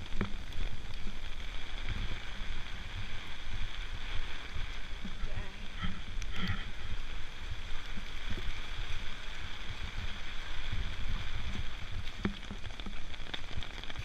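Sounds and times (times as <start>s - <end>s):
heavy rain falling: 0.0s - 14.0s
low uneven rumble: 0.0s - 14.0s.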